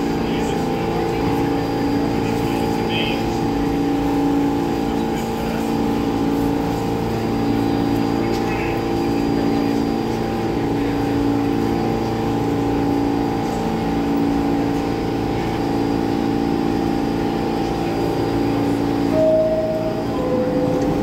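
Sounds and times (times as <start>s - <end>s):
subway train equipment humming: 0.0s - 21.0s
door chime: 19.2s - 21.0s.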